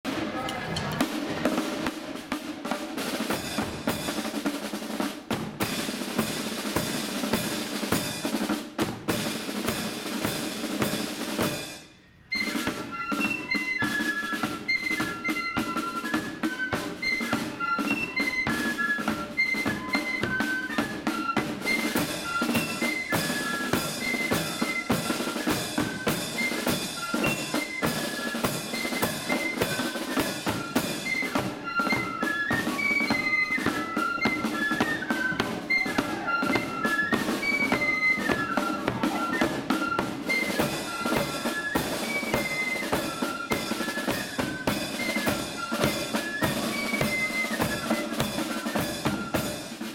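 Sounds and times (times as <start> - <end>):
snare drums: 0.0 - 49.9
flutes playing melody: 11.4 - 49.9.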